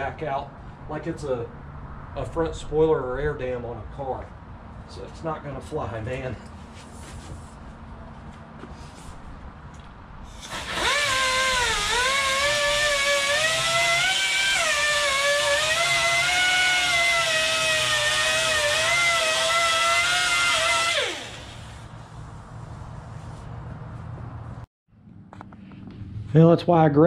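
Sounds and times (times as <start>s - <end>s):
hissing air: 10.2s - 13.6s
air grinder whining: 10.3s - 22.1s.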